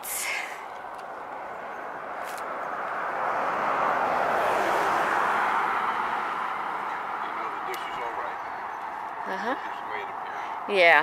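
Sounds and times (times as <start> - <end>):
vehicle passing: 0.0 - 11.0.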